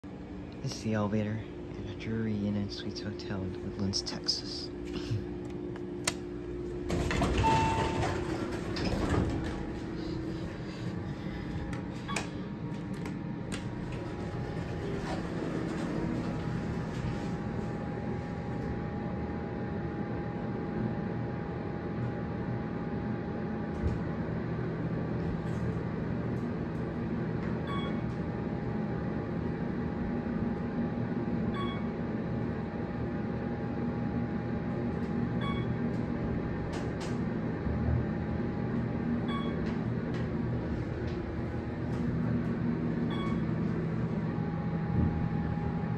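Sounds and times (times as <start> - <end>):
hydraulic pump hum and whine: 0.0 - 45.9
elevator doors sliding open: 6.8 - 10.5, 11.5 - 17.9.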